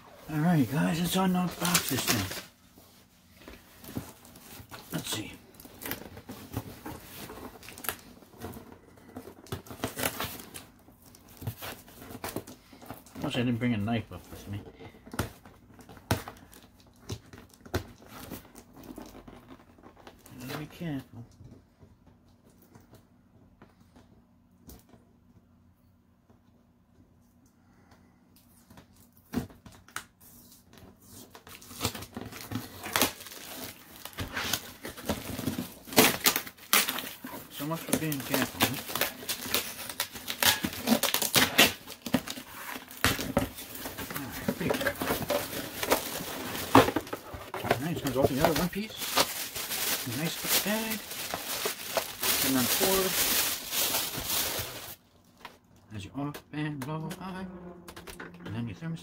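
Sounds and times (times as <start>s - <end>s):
cardboard box tearing open: 31.8s - 54.3s.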